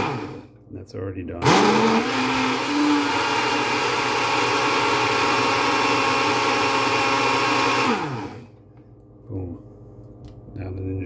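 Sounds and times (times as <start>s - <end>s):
blender motor running: 0.0s - 0.5s, 1.4s - 8.5s.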